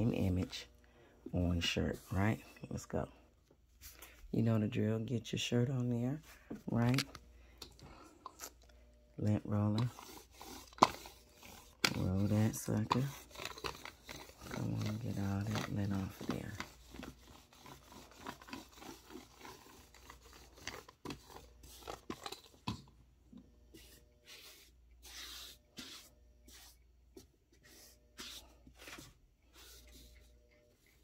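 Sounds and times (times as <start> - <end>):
lint roller crackling on fabric: 9.2 - 22.7, 23.6 - 31.0
hand rubbing fabric: 23.6 - 31.0.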